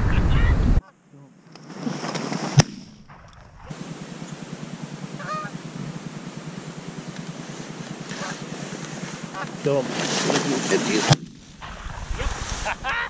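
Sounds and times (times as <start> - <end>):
geese honking: 3.6 - 11.2, 12.6 - 13.0.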